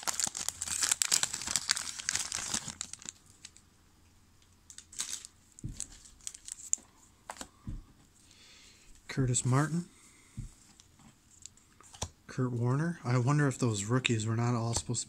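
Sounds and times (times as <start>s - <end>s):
wrapper crinkling and tearing: 0.0s - 3.6s, 4.7s - 6.8s.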